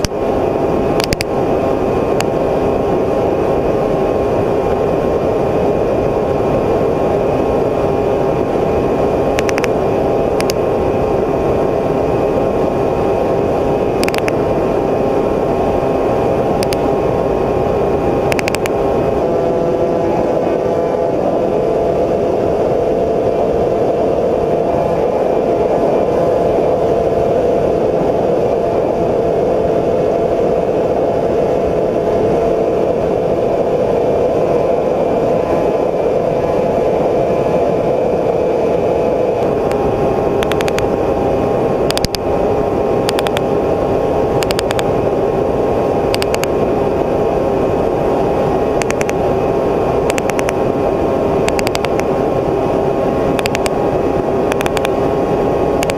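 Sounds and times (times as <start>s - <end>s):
drone motors whirring: 9.3s - 10.6s, 13.9s - 14.4s, 18.2s - 21.0s, 39.4s - 41.1s, 41.9s - 42.3s, 43.0s - 43.6s, 48.6s - 49.2s, 51.4s - 52.2s, 53.3s - 55.1s.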